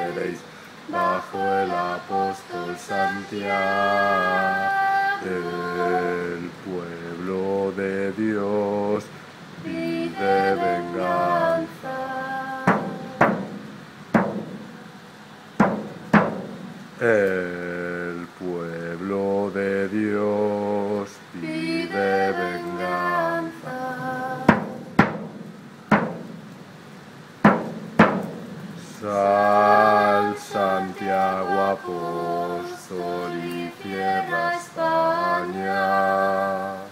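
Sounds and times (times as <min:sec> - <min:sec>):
man singing unaccompanied: 0:00.0 - 0:15.0, 0:15.6 - 0:25.2, 0:28.8 - 0:36.9
sharp knocks: 0:12.7 - 0:14.8, 0:15.6 - 0:16.8, 0:24.5 - 0:26.5, 0:27.4 - 0:28.8.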